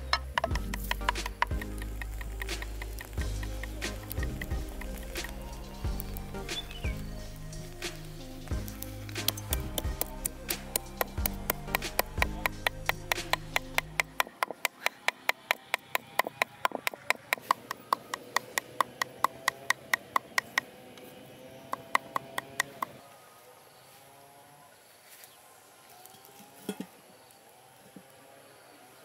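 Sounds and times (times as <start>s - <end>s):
cleaver chopping on wooden block: 10.7s - 20.7s, 21.8s - 22.9s.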